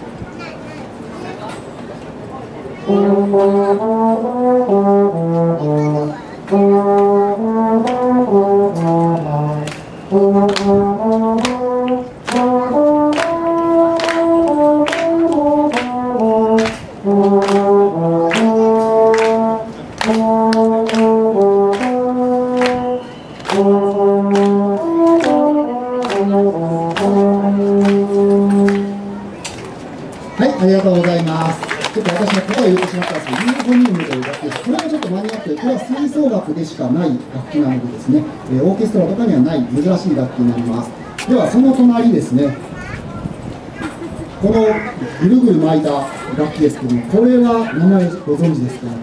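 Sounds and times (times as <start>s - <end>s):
solo euphonium melody: 2.9s - 29.3s.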